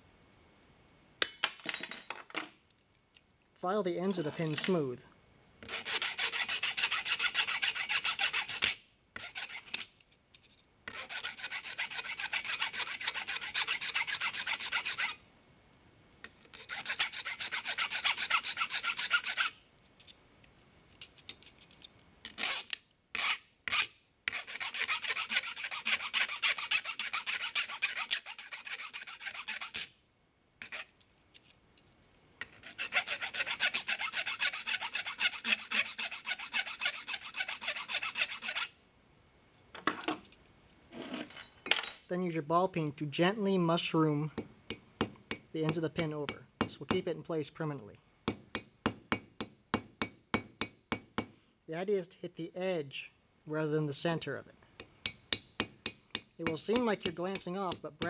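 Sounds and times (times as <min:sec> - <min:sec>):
file rasping on brass rod: 0:05.6 - 0:09.9, 0:10.9 - 0:15.2, 0:16.5 - 0:19.6, 0:22.3 - 0:29.9, 0:30.6 - 0:30.9, 0:32.4 - 0:38.8, 0:55.3 - 0:57.8.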